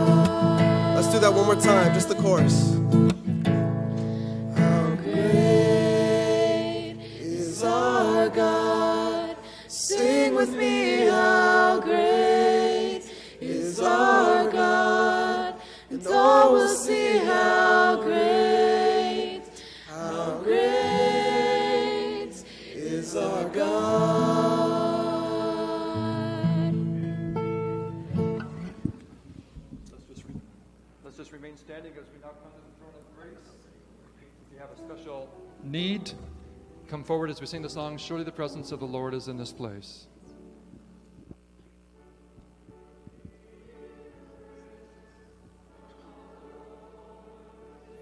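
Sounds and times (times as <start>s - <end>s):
group singing worship song: 0.0s - 3.2s, 3.8s - 27.4s, 43.1s - 48.0s.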